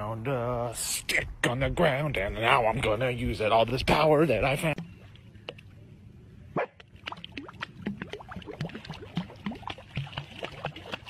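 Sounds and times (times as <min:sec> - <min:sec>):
dog splashing water: 0:07.0 - 0:11.0.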